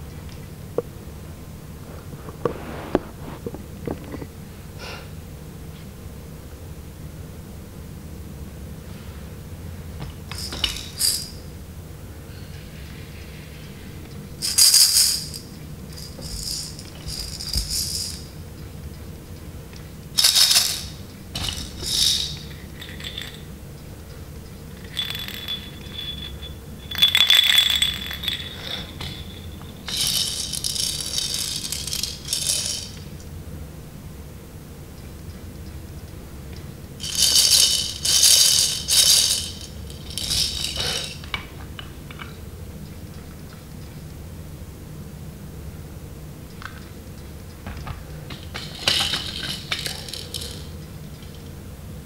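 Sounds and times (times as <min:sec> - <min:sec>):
baby rattles shaken: 0:10.2 - 0:11.4, 0:14.4 - 0:18.3, 0:20.2 - 0:23.5, 0:24.8 - 0:33.0, 0:37.0 - 0:41.3, 0:48.3 - 0:50.8
thin ringing note: 0:24.8 - 0:29.9.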